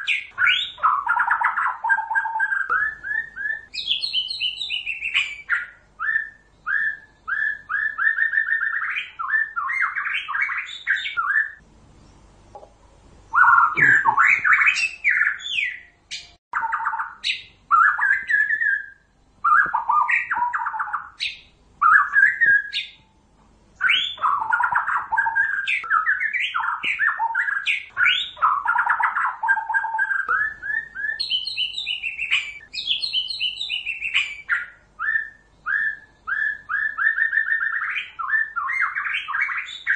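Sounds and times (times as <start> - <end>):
bird singing trills and whistles: 0.0 - 12.1, 13.3 - 23.2, 23.8 - 39.9.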